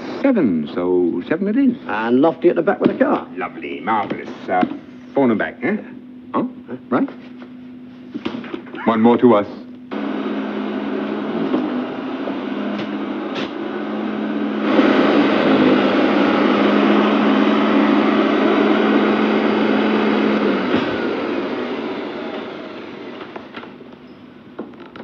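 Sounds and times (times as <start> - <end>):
vacuum cleaner running: 8.8 - 24.7.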